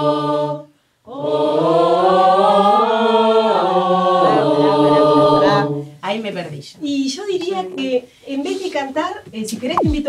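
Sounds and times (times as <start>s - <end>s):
choir singing held chords: 0.0s - 6.0s.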